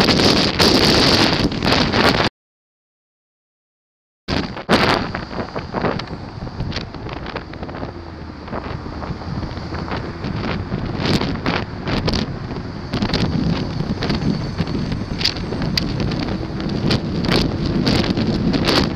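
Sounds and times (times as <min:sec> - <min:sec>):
wind buffeting microphone: 0:00.0 - 0:02.3, 0:04.3 - 0:18.9
wind gusts crackling on mic: 0:00.0 - 0:02.3, 0:04.3 - 0:18.9
motorcycle engine running: 0:04.6 - 0:18.9.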